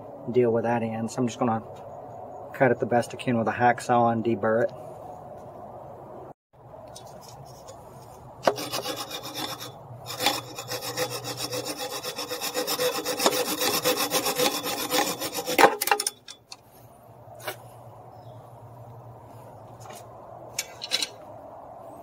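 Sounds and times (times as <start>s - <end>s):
hacksaw cutting metal: 8.4s - 16.5s.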